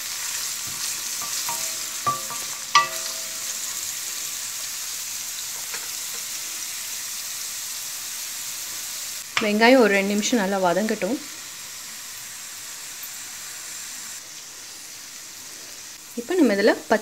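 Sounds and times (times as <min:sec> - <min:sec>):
onions sizzling in hot oil: 0:00.0 - 0:17.0
wooden spoon knocking on metal pan: 0:01.2 - 0:03.6.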